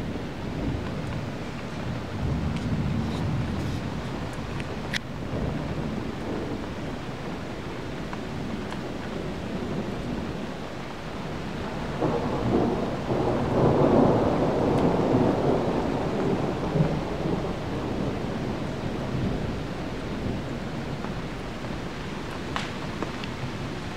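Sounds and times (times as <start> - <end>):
steady rain: 0.0 - 23.9
thunder rumbling: 0.0 - 23.9.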